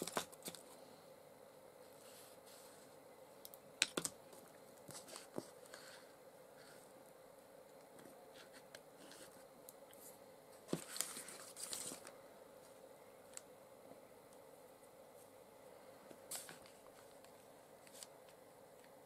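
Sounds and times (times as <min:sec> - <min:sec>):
wax paper crinkling: 0:00.0 - 0:00.7, 0:10.6 - 0:12.2.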